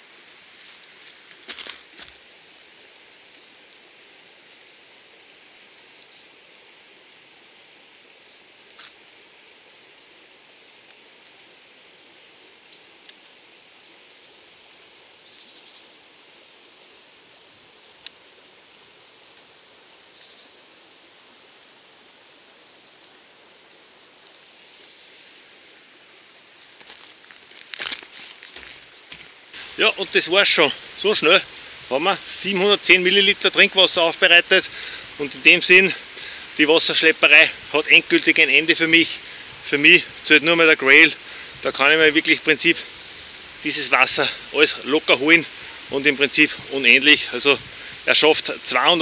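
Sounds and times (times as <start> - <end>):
faint steady hiss: 0.0 - 49.0
small birds chirping: 5.4 - 9.1, 13.8 - 20.6, 27.9 - 49.0
faint clicks: 17.9 - 18.2.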